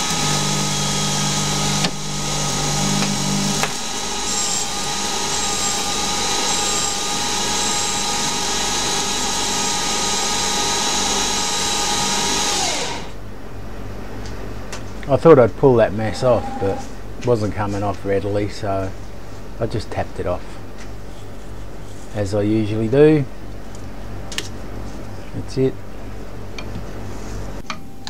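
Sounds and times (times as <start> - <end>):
lathe motor whining: 0.0 - 13.2, 15.9 - 16.9.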